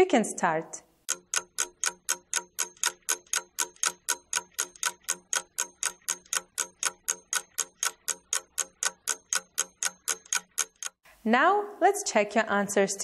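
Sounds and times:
clock ticking: 1.0 - 11.0.

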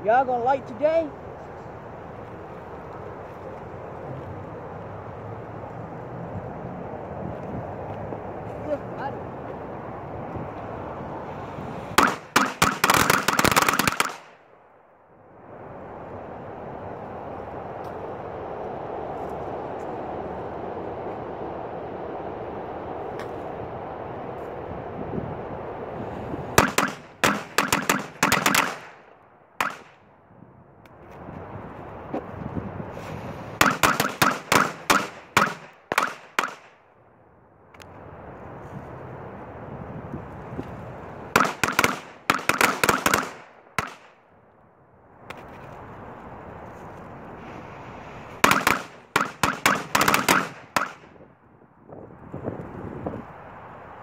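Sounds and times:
firecrackers banging: 12.0 - 14.4, 26.6 - 29.0, 29.6 - 30.0, 33.5 - 36.8, 41.4 - 44.1, 48.3 - 51.1.

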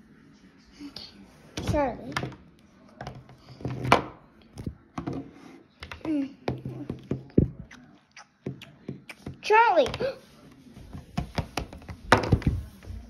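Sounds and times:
plastic figurines knocking on wooden table: 11.2 - 12.6.

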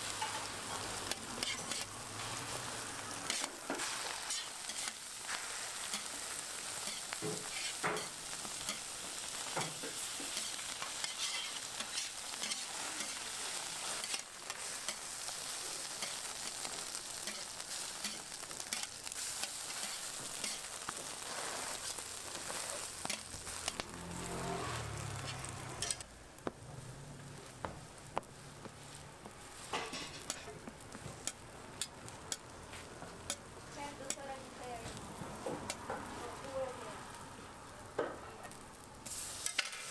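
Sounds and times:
food sizzling on a griddle: 0.0 - 39.9
spatula scraping on metal: 0.2 - 2.3, 3.2 - 6.2, 6.8 - 8.9, 9.5 - 15.1, 15.9 - 23.8, 24.6 - 26.0.

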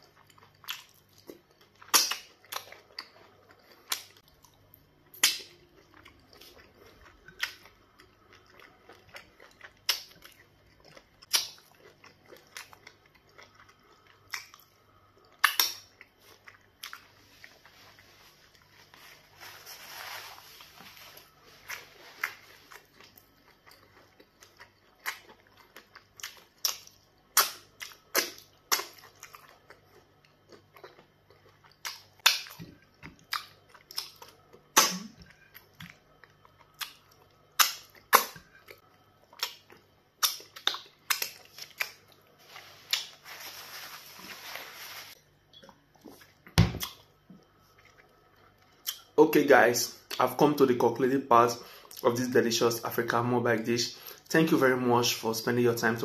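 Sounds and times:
chewing: 0.0 - 19.2, 21.1 - 43.2
soft hissy noise: 17.2 - 22.8, 42.4 - 45.2.

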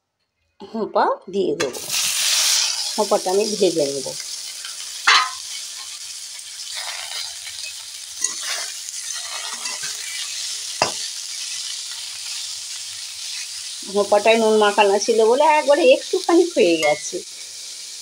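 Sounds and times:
vegetables sizzling in oil: 1.6 - 18.0
sharp metal knock: 5.1 - 5.4
metal spatula scraping pan: 5.1 - 6.0, 6.8 - 11.1.

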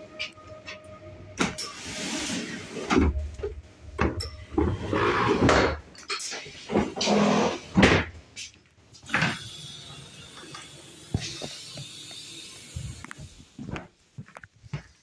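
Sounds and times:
sliding door opening whoosh: 1.4 - 3.2, 4.5 - 5.8
steady hiss: 9.0 - 14.2.

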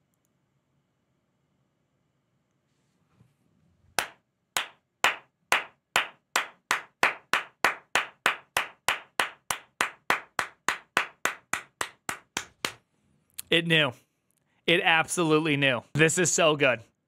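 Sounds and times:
person clapping slowly: 4.0 - 12.8.

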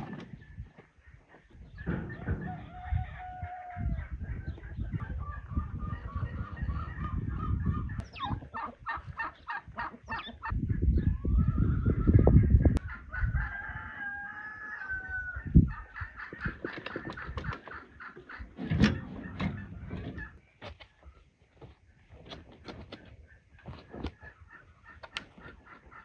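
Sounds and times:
hens clucking: 0.0 - 26.0
rooster crowing: 2.4 - 4.0, 13.1 - 15.4.

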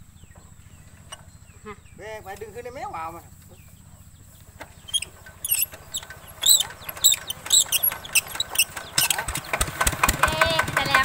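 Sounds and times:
diesel engine starting and running: 0.0 - 11.0
short high squeaks: 4.8 - 9.5.

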